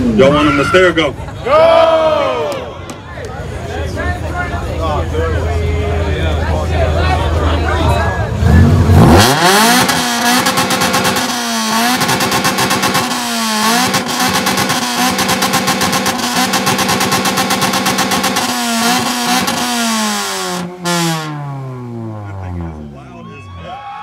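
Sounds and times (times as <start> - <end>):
car engine revving: 8.3 - 23.1.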